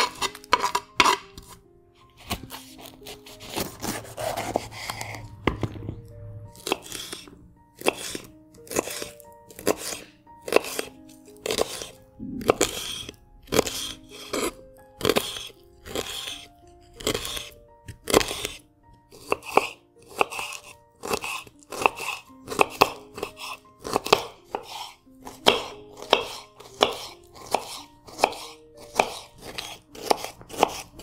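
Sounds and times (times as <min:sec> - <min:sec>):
knife cutting pepper on board: 0:00.0 - 0:01.6, 0:02.2 - 0:05.7, 0:06.6 - 0:31.0.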